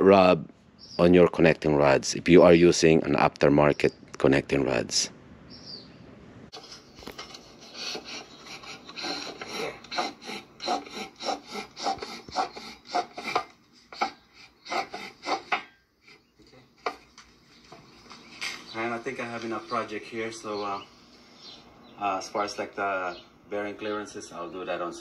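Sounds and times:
metal scraping on metal: 0:06.5 - 0:17.1.

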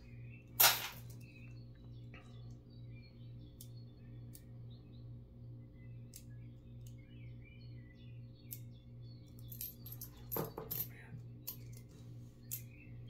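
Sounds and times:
steady low hum: 0:00.0 - 0:13.0
coins clinking: 0:00.6 - 0:01.2, 0:09.4 - 0:11.9.

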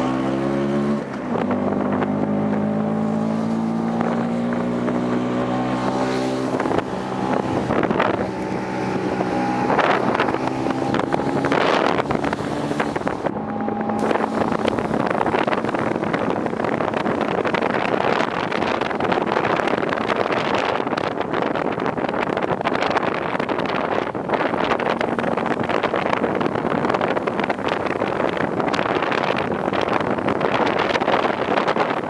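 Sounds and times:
wind noise on microphone: 0:00.0 - 0:32.0
scooter engine running: 0:06.5 - 0:19.0.

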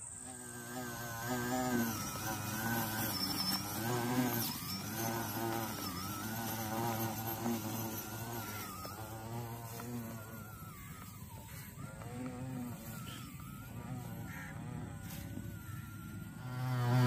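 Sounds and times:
small electric motors whining: 0:00.0 - 0:17.0.

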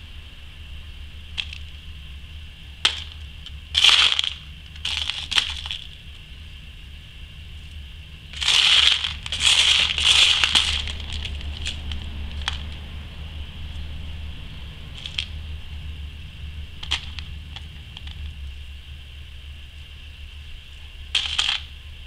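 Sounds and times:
beads clattering in plastic box: 0:02.8 - 0:06.0, 0:08.4 - 0:12.8, 0:15.0 - 0:15.4, 0:16.8 - 0:18.2, 0:21.1 - 0:21.7.

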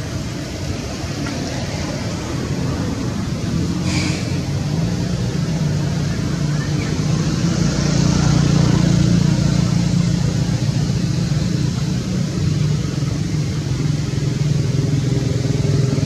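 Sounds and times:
vehicle engine running: 0:00.0 - 0:16.0.

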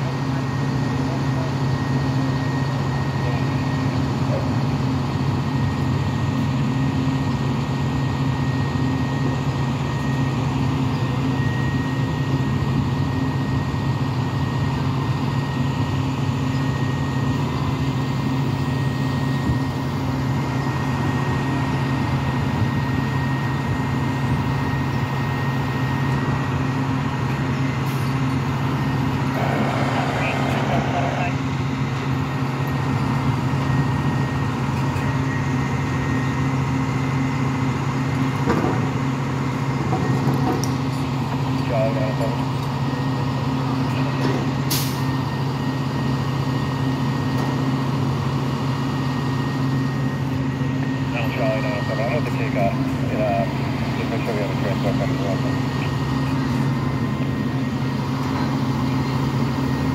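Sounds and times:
truck engine idling: 0:13.3 - 0:39.8.

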